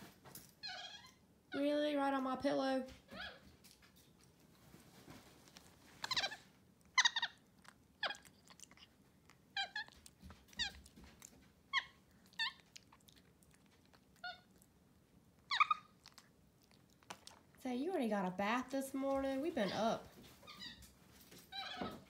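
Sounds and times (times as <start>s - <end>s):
monkey squeaky calls: 15.5s - 15.9s.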